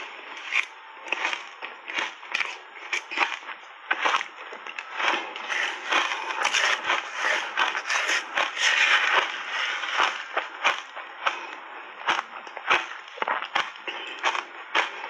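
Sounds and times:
ice being chewed: 0.0s - 15.0s.

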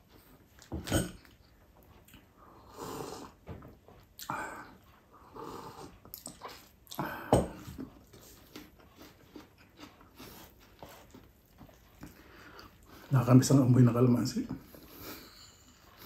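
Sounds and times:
chewing and lip-smacking: 0.1s - 2.4s, 5.8s - 13.1s.

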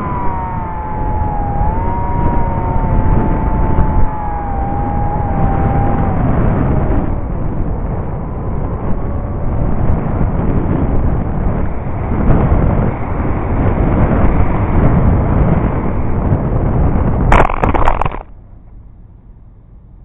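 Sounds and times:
model plane motor whine: 0.0s - 11.6s
wind buffeting microphone: 0.0s - 18.3s.

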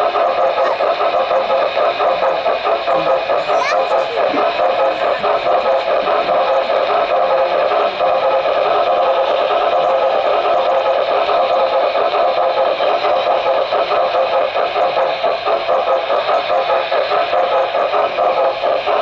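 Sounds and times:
model train whirring and rattling: 0.0s - 19.0s.

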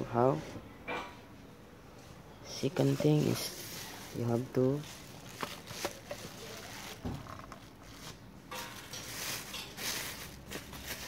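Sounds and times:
plastic bag crinkling: 2.6s - 11.0s.

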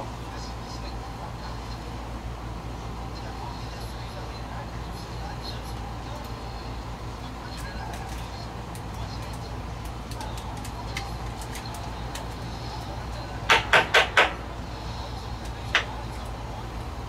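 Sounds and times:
steady low hum: 0.0s - 17.0s
sharp knocks: 13.5s - 14.4s.

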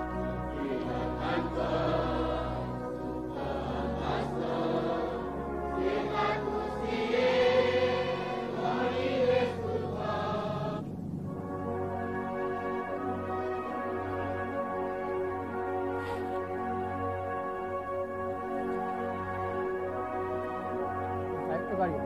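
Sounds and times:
choir singing held notes: 0.0s - 17.3s.

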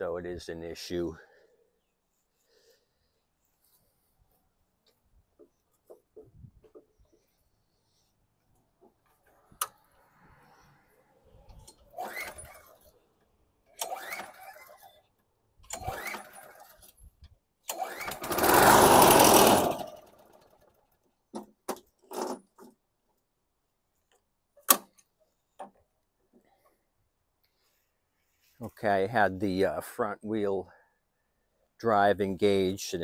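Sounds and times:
recoil starter pulls whining: 11.5s - 13.0s, 13.7s - 17.0s, 17.6s - 21.0s
lawn mower engine running: 13.8s - 15.0s, 15.7s - 16.9s, 17.7s - 20.9s.

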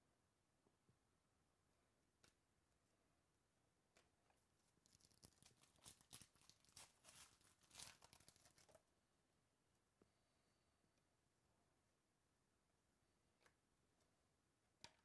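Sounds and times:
wrapper crinkling and tearing: 4.8s - 8.8s.

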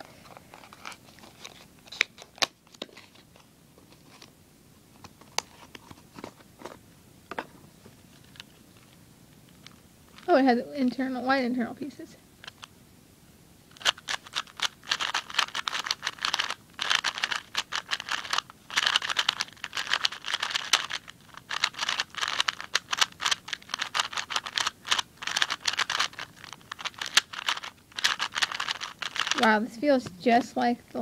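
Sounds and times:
speed cube plastic clicking: 13.7s - 29.4s.

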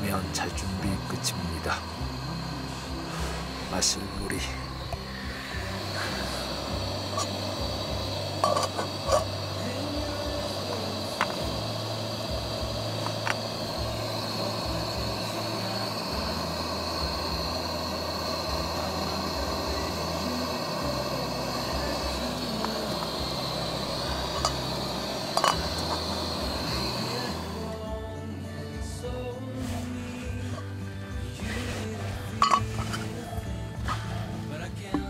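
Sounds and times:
gas stove burning hiss: 0.0s - 35.0s
metal pot and lid clinks: 8.4s - 9.3s, 32.4s - 32.8s.

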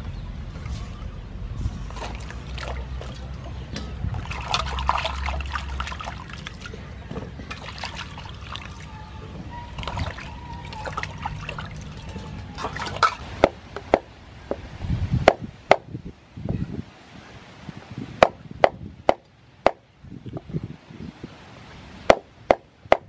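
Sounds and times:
water splashing in a bowl: 1.9s - 9.1s, 9.7s - 14.0s.

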